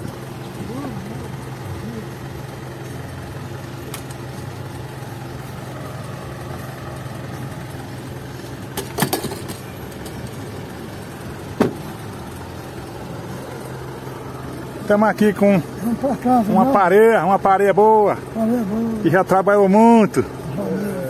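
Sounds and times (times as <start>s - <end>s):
vehicle engine humming: 0.0s - 21.0s
sharp knocks or rattles: 8.7s - 10.3s.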